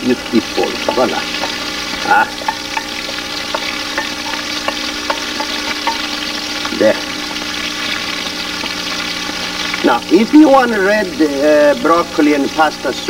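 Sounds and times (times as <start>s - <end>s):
soup sizzling in a pot: 0.0s - 13.0s
spoon clicking against pot: 2.4s - 6.2s.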